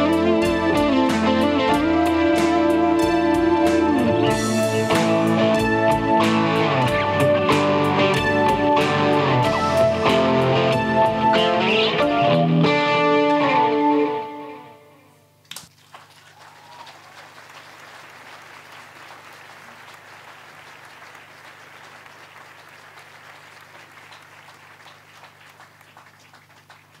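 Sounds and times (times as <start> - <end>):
audience applauding: 15.5 - 27.0.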